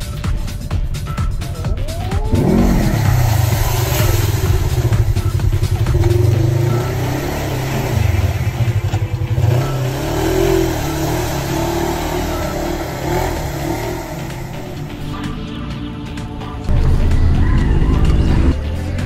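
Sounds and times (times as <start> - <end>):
mud and water spraying: 1.8 - 15.2
off-road vehicle engine revving: 1.8 - 19.0.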